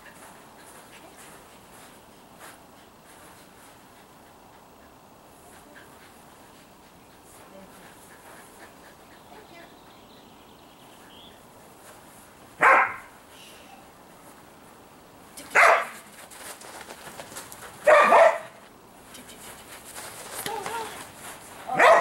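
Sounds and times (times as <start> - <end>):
dog barking: 12.6 - 13.2, 15.6 - 16.0, 17.8 - 18.6, 21.7 - 22.0.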